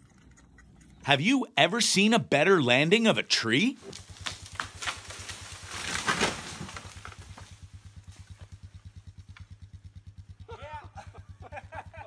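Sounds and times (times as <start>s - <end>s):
chainsaw idling: 1.1s - 12.0s
leaves and branches rustling: 3.5s - 9.6s.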